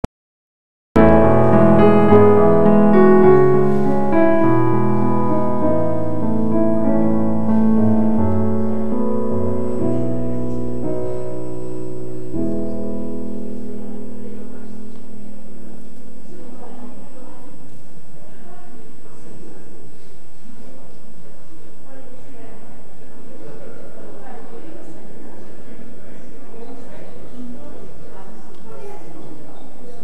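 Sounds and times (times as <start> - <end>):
slow piano chords: 1.0 - 18.1.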